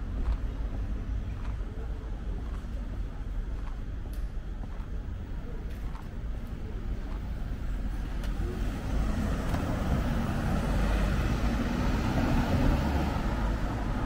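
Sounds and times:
street traffic: 0.0 - 14.0
car driving past: 8.5 - 14.0.

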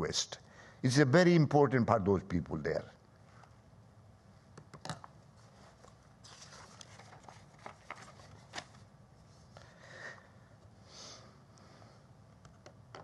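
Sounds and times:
paper notes rustling: 5.4 - 8.9.

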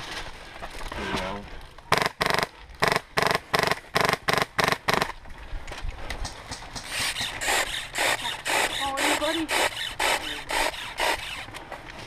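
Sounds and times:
airsoft gun rapid bursts: 1.9 - 5.1.

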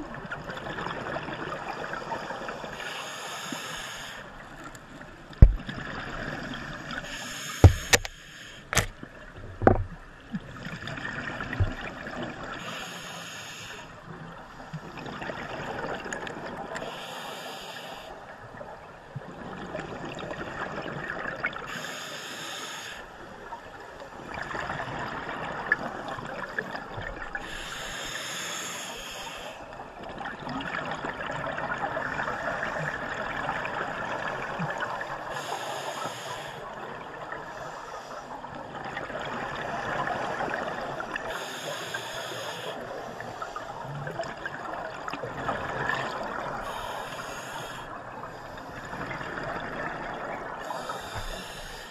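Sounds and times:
steady watery hiss: 1.9 - 5.8, 6.7 - 9.8, 11.6 - 18.8, 21.6 - 24.0, 26.5 - 30.1, 34.6 - 38.6, 39.5 - 51.9
sharp knocks: 7.6 - 8.1.

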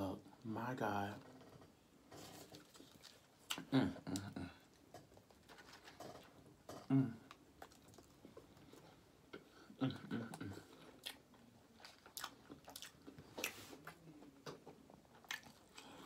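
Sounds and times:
person chewing food: 2.2 - 16.0
person humming: 6.9 - 7.2.

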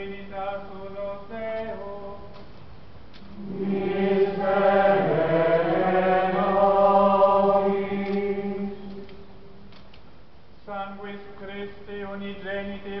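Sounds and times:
many voices chanting in unison: 3.4 - 9.2.

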